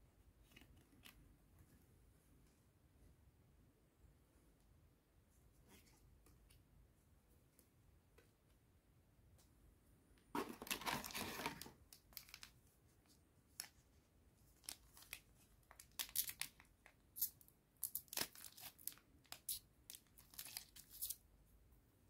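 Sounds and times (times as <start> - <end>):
foil wrapper crinkling and tearing: 10.6 - 12.5, 14.6 - 21.2.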